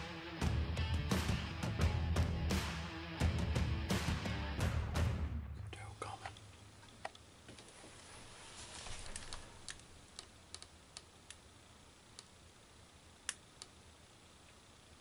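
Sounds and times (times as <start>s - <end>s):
soft rustle: 7.4s - 10.1s
faint sharp ticks and clicks: 9.0s - 11.5s, 12.1s - 12.5s, 13.2s - 13.8s.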